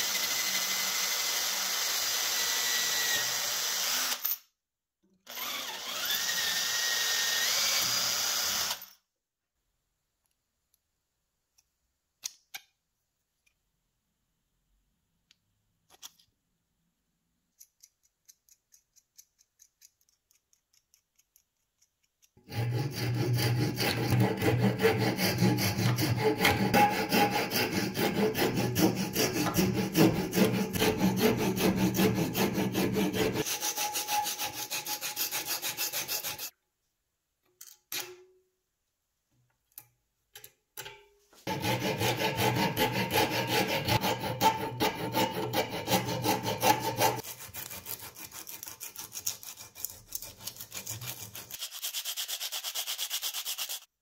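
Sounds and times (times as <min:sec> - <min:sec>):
hand file rasping on wood: 0:22.4 - 0:36.5, 0:41.5 - 0:53.9.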